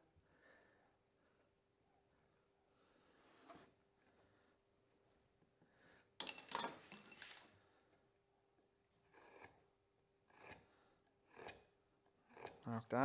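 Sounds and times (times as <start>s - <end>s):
marking tool scratching wood: 12.3s - 12.6s.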